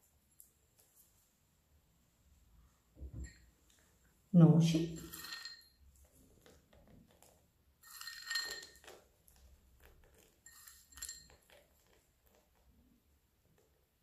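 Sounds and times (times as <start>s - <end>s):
small glass bowl clinking: 3.1s - 3.5s, 4.8s - 5.9s, 7.8s - 9.4s, 10.1s - 12.0s.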